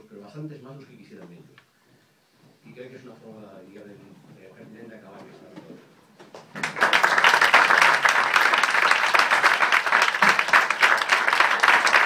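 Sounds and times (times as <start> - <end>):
audience applauding: 6.5 - 12.0.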